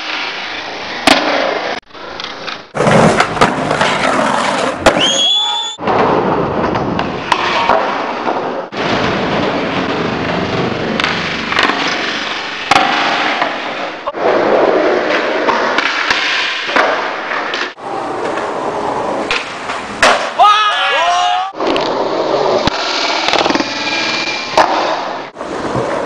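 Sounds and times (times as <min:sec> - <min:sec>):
skateboard wheels rolling on concrete: 0:00.0 - 0:26.0
skateboard clacks and thuds: 0:01.0 - 0:05.1.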